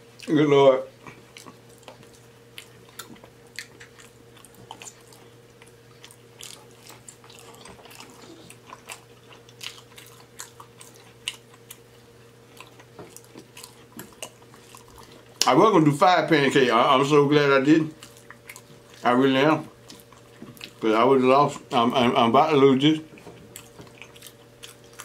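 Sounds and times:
faint hum: 0.0 - 25.0
wet chewing and lip smacking: 1.0 - 15.5, 17.9 - 20.9, 23.1 - 25.0.

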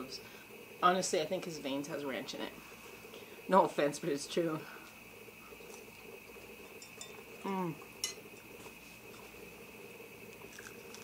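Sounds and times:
steady background hum: 0.0 - 11.0
eating mouth noises and clicks: 10.3 - 11.0.

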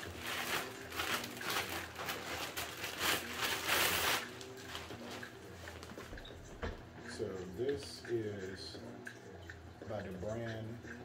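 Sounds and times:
plastic packaging rustling: 0.0 - 6.0.

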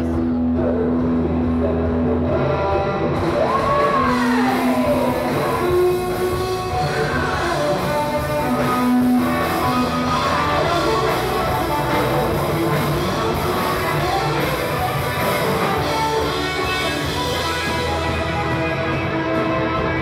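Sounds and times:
drums: 0.0 - 20.0
electric guitar: 0.0 - 20.0
live rock band: 0.0 - 20.0.

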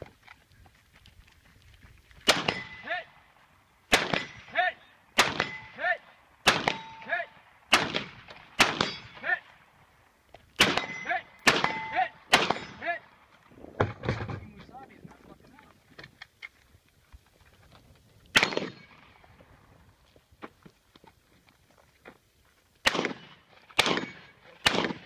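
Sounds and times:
rifle shots: 2.2 - 2.8, 3.9 - 4.5, 5.2 - 5.8, 6.4 - 7.1, 7.7 - 9.2, 10.6 - 12.9, 18.3 - 19.1, 22.8 - 25.0
bullet ringing on steel target: 10.7 - 12.8.

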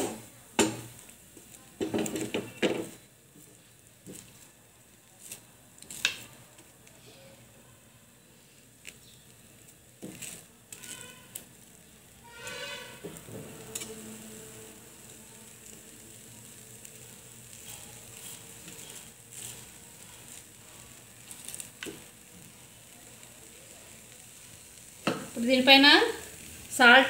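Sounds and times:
spatula tapping and scraping: 0.0 - 4.5, 8.8 - 11.6, 16.9 - 22.2
egg frying on a hot griddle: 0.0 - 27.0.

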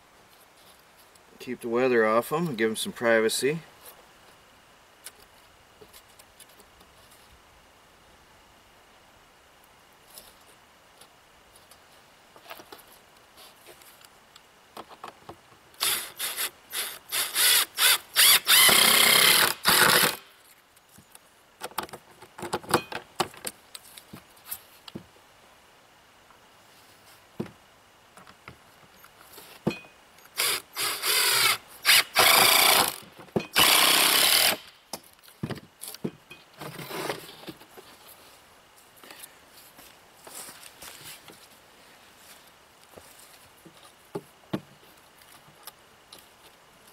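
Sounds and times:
cordless drill driving screws: 15.8 - 20.2, 30.4 - 33.0, 33.6 - 34.7.

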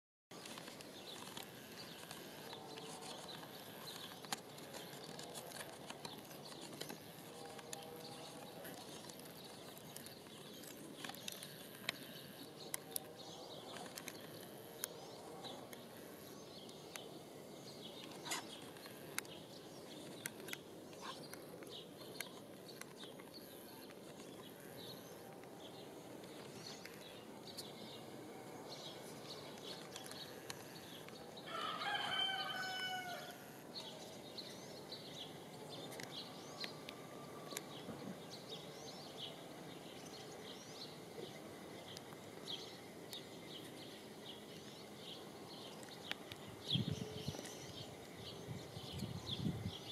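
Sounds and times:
rooster crowing: 31.4 - 33.5.

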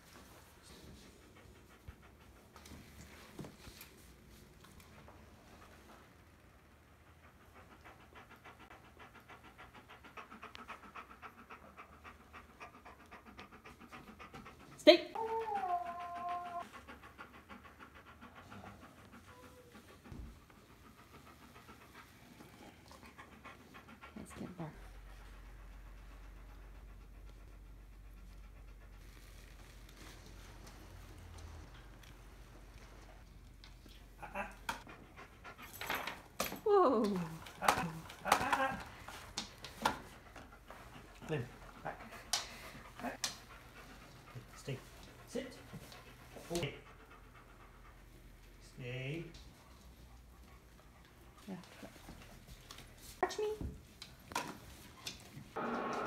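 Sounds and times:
dog panting: 0.0 - 55.6.

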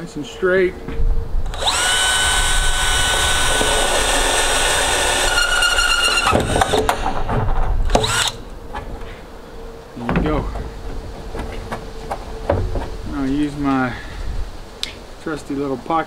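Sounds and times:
cordless drill motor whine: 1.4 - 7.2, 7.9 - 8.5.

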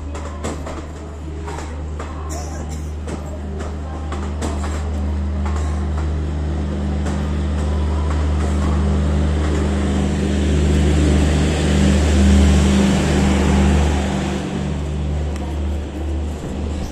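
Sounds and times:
train coaches rumbling past: 0.0 - 16.9.

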